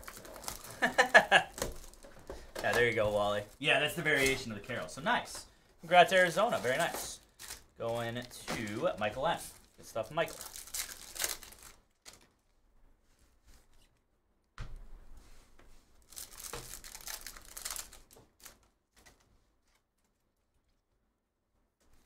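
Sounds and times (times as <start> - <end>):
wrapper tearing and crinkling: 0.0 - 5.0, 6.1 - 12.4, 16.0 - 19.2
cards rustling: 0.0 - 12.4, 16.0 - 19.8.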